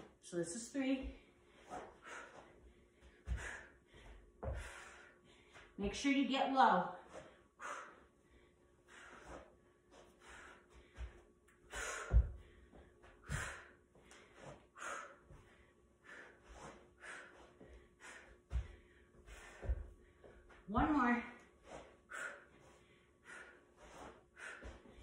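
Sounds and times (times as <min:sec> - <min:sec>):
woman breathing hard: 0:01.2 - 0:05.8, 0:07.1 - 0:20.6, 0:21.7 - 0:25.0.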